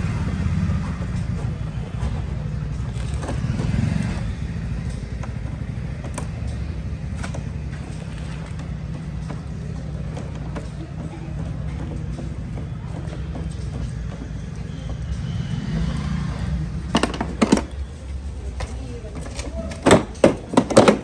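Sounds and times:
vehicle engine rumble: 0:00.0 - 0:21.0
tool clicking on plastic panels: 0:04.9 - 0:10.9.

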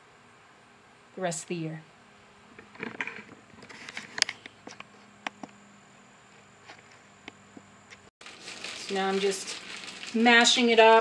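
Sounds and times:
short rustle: 0:08.2 - 0:10.7.

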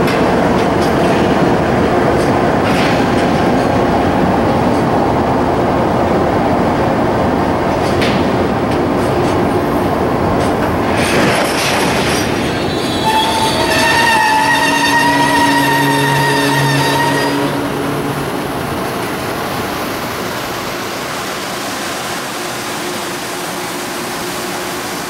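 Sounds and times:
train wheels clicking over rail joints: 0:00.0 - 0:05.2, 0:07.3 - 0:21.0
train brakes squealing: 0:12.5 - 0:17.9.

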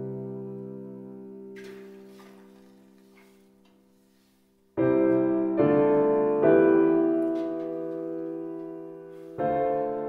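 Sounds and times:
piano chords: 0:00.0 - 0:10.0.

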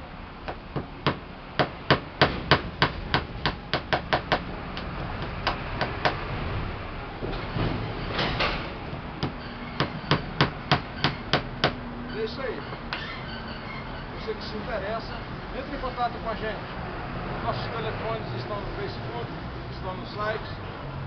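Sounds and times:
hammer tapping nails into wood: 0:00.5 - 0:06.2, 0:09.2 - 0:11.8.

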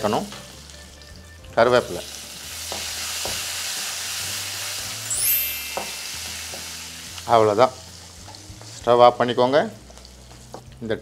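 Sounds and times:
curry leaves sizzling in oil: 0:00.0 - 0:11.0
rising high chime: 0:05.1 - 0:07.0.

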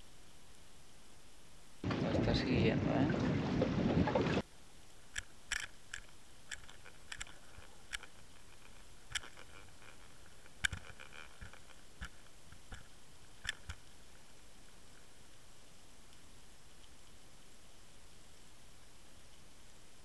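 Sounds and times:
low steady underwater hiss: 0:00.0 - 0:20.0
faint clicks and crackles: 0:04.8 - 0:20.0.

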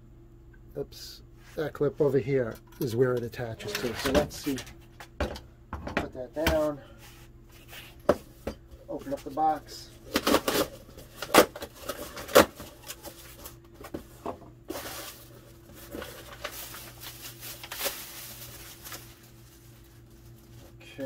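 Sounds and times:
plastic bag and paper rustling: 0:09.0 - 0:21.0.

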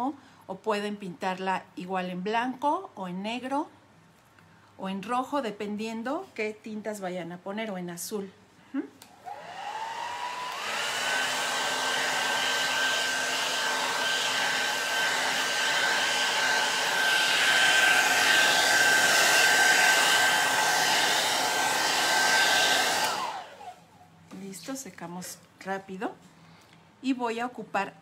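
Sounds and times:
hair dryer blowing: 0:09.1 - 0:23.9.

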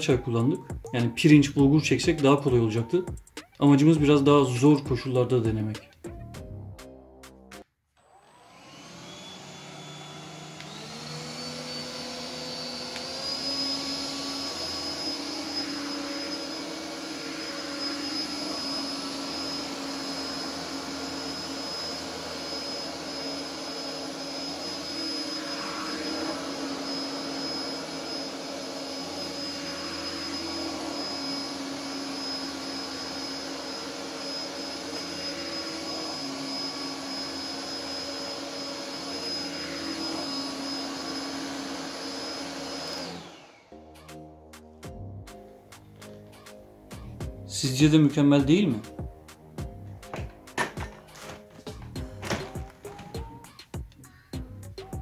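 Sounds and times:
stick vacuum whining: 0:08.0 - 0:43.7, 0:50.0 - 0:54.0.

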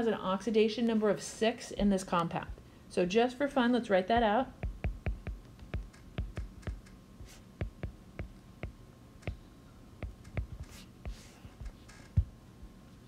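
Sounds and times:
stylus tapping on glass screen: 0:04.2 - 0:09.4, 0:10.0 - 0:12.3.

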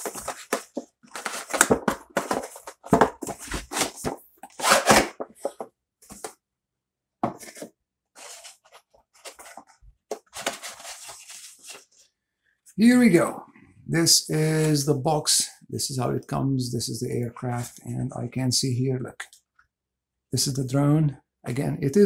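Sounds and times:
cardboard box scraping and rustling: 0:00.0 - 0:05.2.

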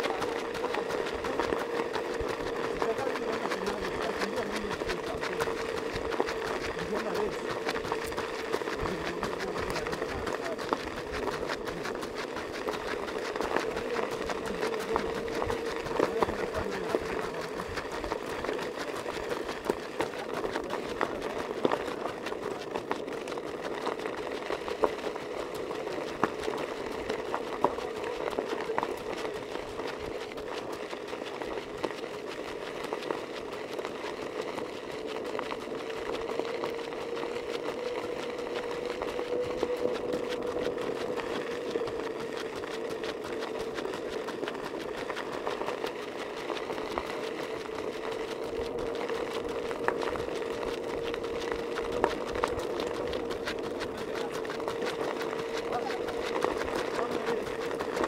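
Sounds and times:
vehicle motor whine: 0:33.4 - 0:58.0.

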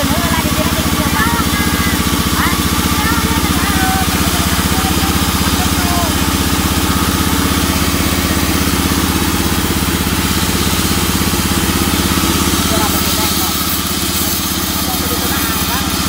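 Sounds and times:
saw blade cutting wood: 0:00.0 - 0:16.0
sawmill engine putter: 0:00.0 - 0:16.0.

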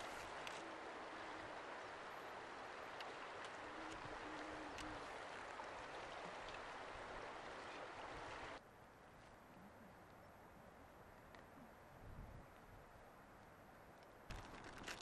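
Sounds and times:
river rushing over stones: 0:00.0 - 0:08.6.

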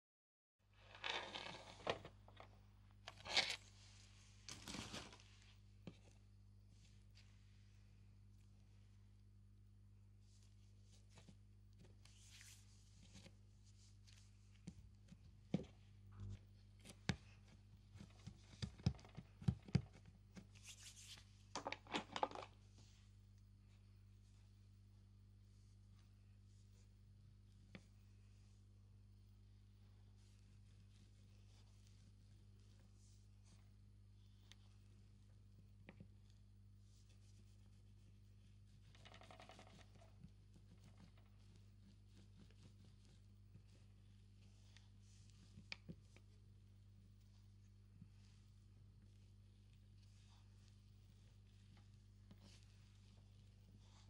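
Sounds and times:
faint steady hum: 0:00.6 - 0:54.0
rustling and crinkling: 0:00.7 - 0:07.7, 0:10.2 - 0:24.5, 0:34.3 - 0:54.0.

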